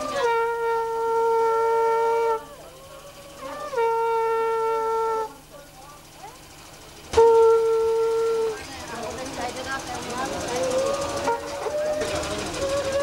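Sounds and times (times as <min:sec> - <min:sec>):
conch shell blasts: 0:00.0 - 0:05.4, 0:07.1 - 0:08.6.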